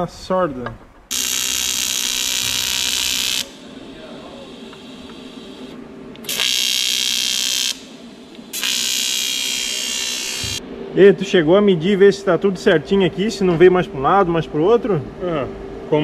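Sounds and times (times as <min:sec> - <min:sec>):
welding arc buzzing: 0:01.1 - 0:10.6.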